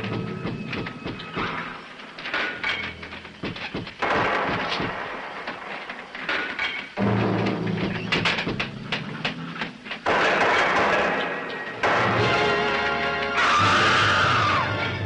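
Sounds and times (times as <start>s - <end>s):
heavy knocks and crashes: 0.0s - 13.4s.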